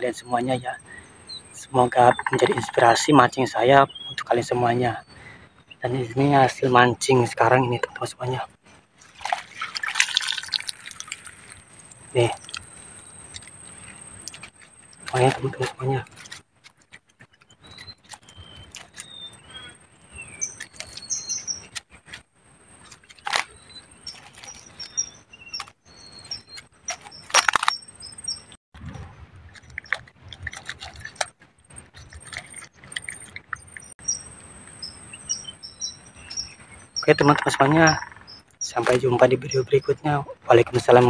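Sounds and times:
small birds chirping: 0.0s - 8.8s, 9.6s - 28.6s, 29.6s - 41.0s
keep net rustling and clicking: 29.5s - 33.8s.

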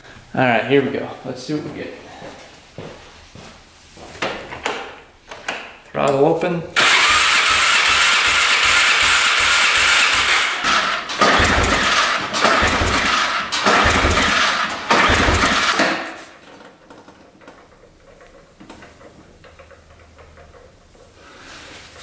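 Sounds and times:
engine cranking and chugging: 6.8s - 22.0s.

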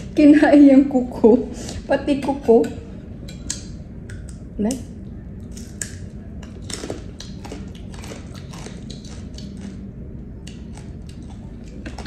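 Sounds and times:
crunchy chewing: 5.2s - 12.0s.

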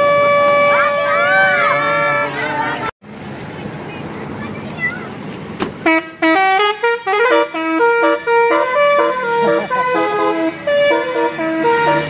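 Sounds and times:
musical bus horn playing a tune: 0.0s - 2.9s, 5.8s - 12.0s.

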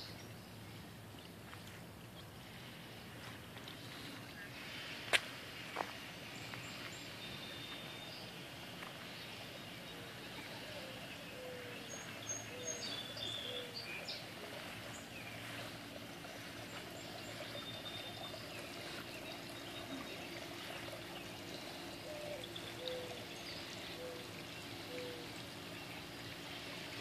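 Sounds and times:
birds chirping: 5.7s - 27.0s
water trickling: 5.7s - 27.0s.

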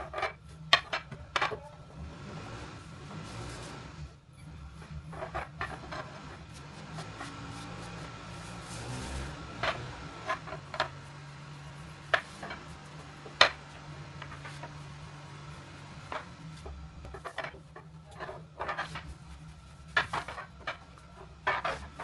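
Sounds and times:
low steady hum: 0.0s - 22.0s
hands rubbing dough: 6.4s - 17.2s.

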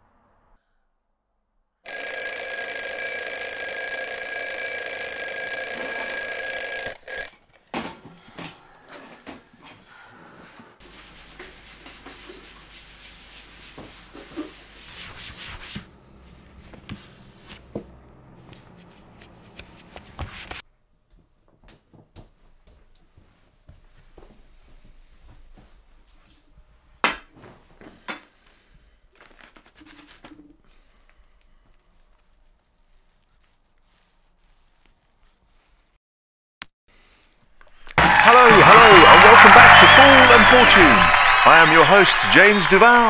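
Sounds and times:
alarm clock ringing: 1.9s - 7.3s, 38.3s - 42.7s.

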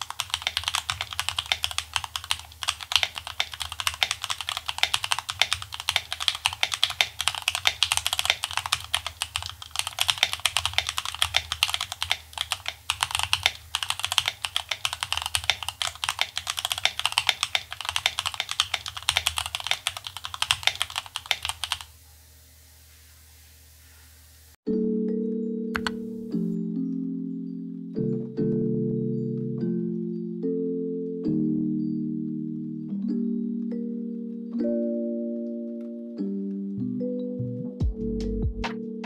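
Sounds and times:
rapid typing on mechanical keyboard: 0.0s - 21.9s.

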